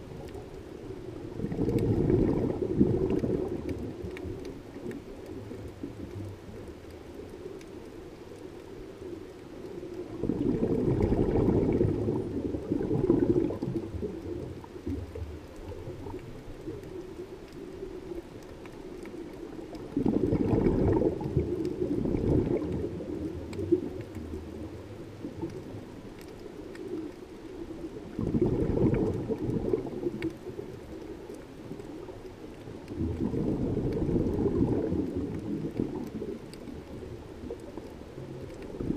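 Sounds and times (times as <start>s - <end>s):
regulator exhale bubbling: 1.2s - 4.1s, 10.0s - 16.2s, 19.8s - 25.8s, 28.0s - 30.7s, 32.9s - 36.6s.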